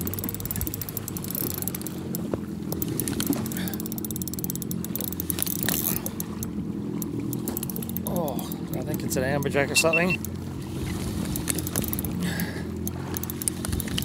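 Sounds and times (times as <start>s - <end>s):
fishing reel clicking: 0.0s - 10.4s, 11.2s - 14.0s
jet ski engine idling: 0.0s - 14.0s.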